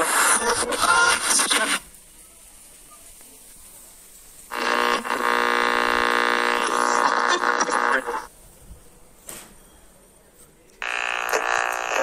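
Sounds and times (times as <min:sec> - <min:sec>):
loud burst of radio audio: 0:00.0 - 0:02.0, 0:04.5 - 0:08.3, 0:10.8 - 0:12.0
faint hiss: 0:00.0 - 0:10.8
steady buzzing tone: 0:04.5 - 0:08.3, 0:10.8 - 0:12.0.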